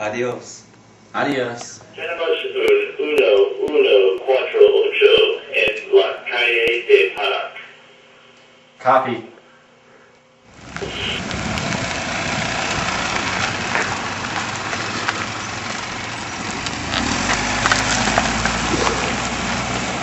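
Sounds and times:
car engine rumbling: 0:10.5 - 0:20.0.

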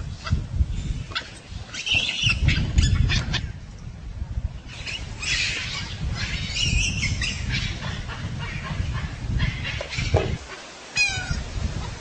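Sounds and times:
animal calls: 0:04.8 - 0:12.0.

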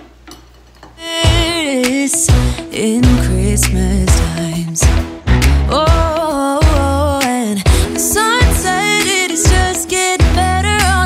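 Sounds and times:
pop song with singing: 0:01.0 - 0:11.0
strong bass line: 0:01.2 - 0:01.6, 0:02.3 - 0:08.7, 0:09.5 - 0:11.0.

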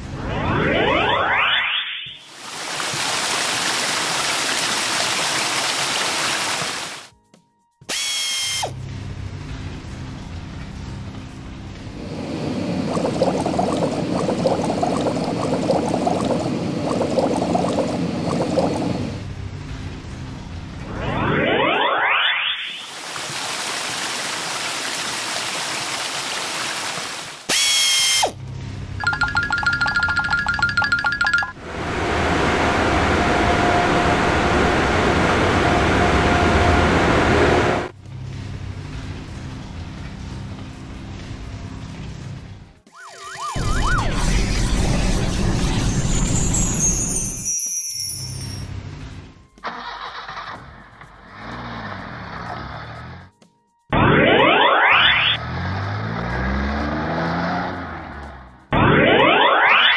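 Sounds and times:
rising whir: 0:00.0 - 0:02.2, 0:11.8 - 0:19.4, 0:20.7 - 0:22.8, 0:29.0 - 0:38.0, 0:43.1 - 0:47.4, 0:54.0 - 0:59.9
bright tone dropping in pitch: 0:00.2 - 0:02.2, 0:43.0 - 0:48.7
steady tone: 0:29.0 - 0:37.9
short bright tone: 0:45.7 - 0:48.8
background music: 0:48.7 - 0:54.7.

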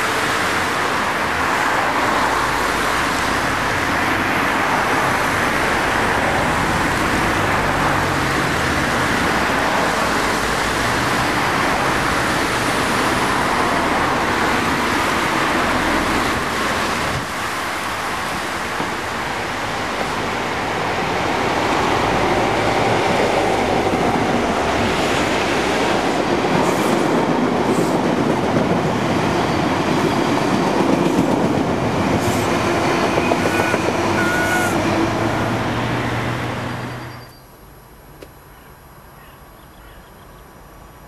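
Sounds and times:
train passing at speed: 0:00.0 - 0:37.5
train wheels rattling on rails: 0:08.2 - 0:37.4.

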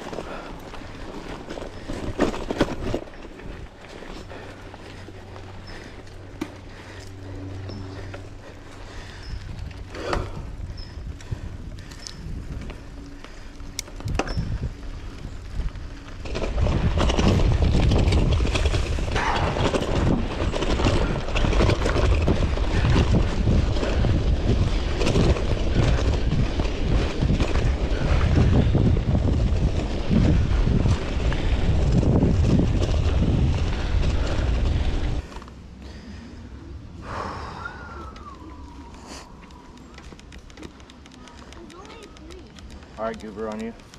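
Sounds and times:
wind buffeting microphone: 0:00.0 - 0:35.3
bike tyres rolling on dirt: 0:00.0 - 0:43.9
clicks: 0:38.1 - 0:43.9.

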